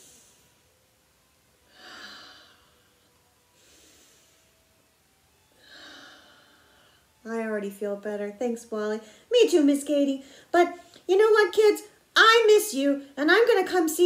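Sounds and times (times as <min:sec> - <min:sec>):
woman breathing deeply: 0:01.7 - 0:04.8, 0:05.6 - 0:07.2, 0:10.2 - 0:10.9.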